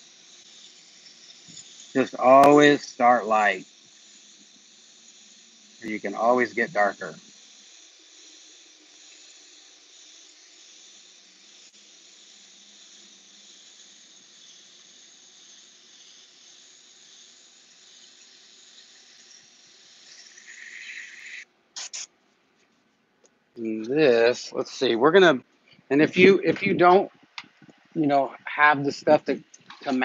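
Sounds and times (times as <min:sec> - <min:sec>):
airbrush spraying air hiss: 0:00.0 - 0:22.1.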